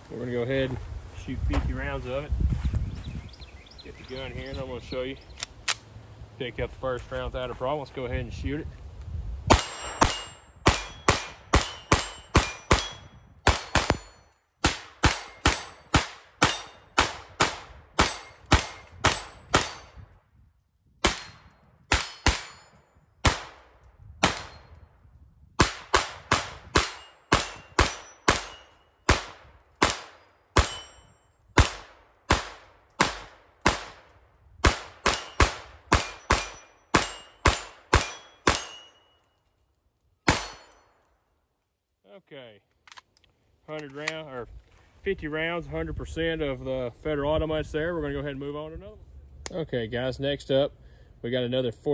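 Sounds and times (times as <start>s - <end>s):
pistol shots: 9.5s - 20.0s, 21.0s - 24.7s, 25.6s - 31.0s, 31.6s - 39.1s, 40.3s - 40.9s
short metallic ring: 9.6s - 14.4s, 22.0s - 23.0s, 30.6s - 31.4s, 36.0s - 39.3s.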